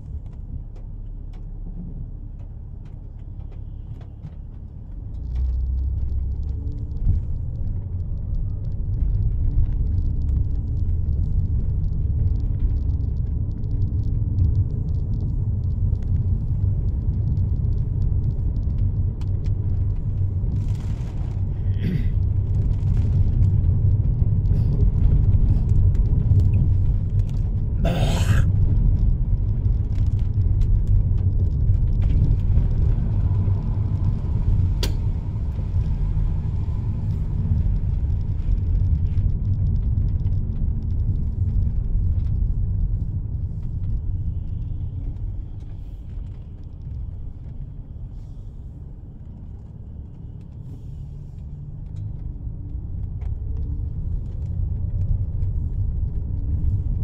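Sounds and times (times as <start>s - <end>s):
car cabin road rumble: 0.0s - 57.0s.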